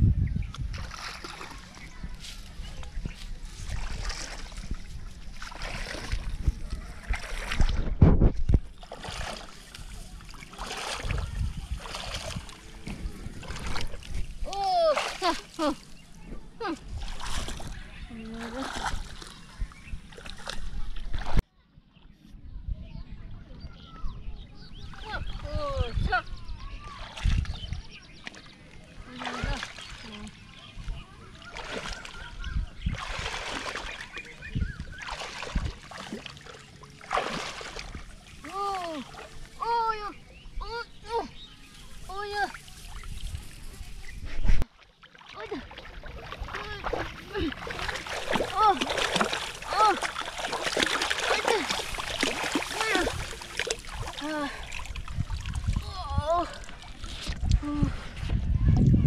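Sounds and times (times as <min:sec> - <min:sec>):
hands splashing in water: 0:03.6 - 0:12.6, 0:13.4 - 0:15.8, 0:17.0 - 0:19.4, 0:31.4 - 0:32.3, 0:32.9 - 0:39.6, 0:44.5 - 0:57.5
dull low thumps: 0:04.5 - 0:08.8, 0:57.3 - 0:59.0.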